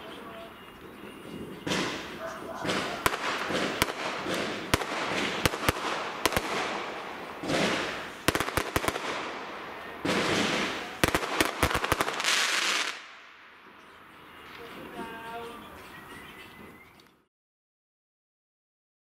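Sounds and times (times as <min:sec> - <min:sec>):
fireworks bangs and crackling: 0:00.0 - 0:15.5
fireworks hiss: 0:01.1 - 0:13.3.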